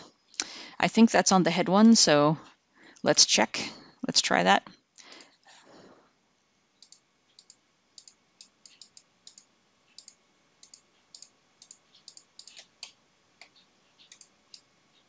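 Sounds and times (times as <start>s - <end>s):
computer mouse clicks: 6.8s - 15.0s.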